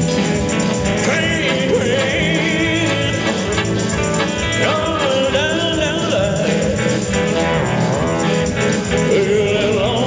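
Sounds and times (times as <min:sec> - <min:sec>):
live rock band playing: 0:00.0 - 0:10.0
man singing: 0:00.9 - 0:07.4, 0:08.8 - 0:10.0.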